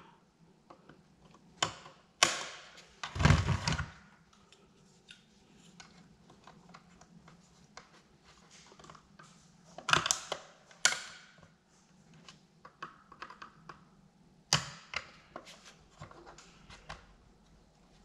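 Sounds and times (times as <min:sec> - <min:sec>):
plastic parts clicking and tapping: 0:08.6 - 0:17.1.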